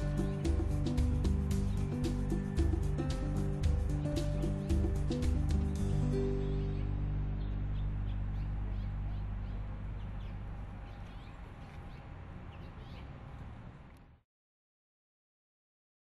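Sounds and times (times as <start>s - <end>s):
low held music tones: 0.0s - 13.9s
birds chirping: 0.0s - 14.0s.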